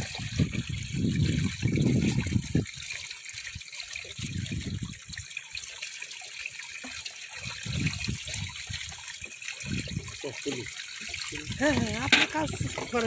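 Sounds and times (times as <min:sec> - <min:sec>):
muddy water sloshing: 0:06.5 - 0:13.0.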